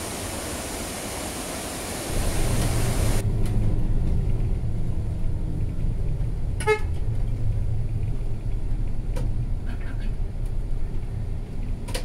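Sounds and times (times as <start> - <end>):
bus engine rumble: 2.1 - 12.0
bus horn toot: 6.6 - 7.0.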